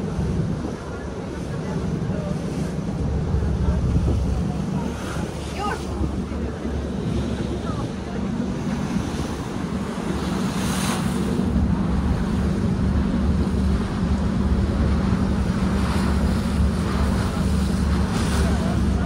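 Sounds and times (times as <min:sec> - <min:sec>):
ferry engine humming: 0:00.0 - 0:19.0
water hissing along hull: 0:00.0 - 0:19.0
wind on microphone: 0:00.0 - 0:19.0.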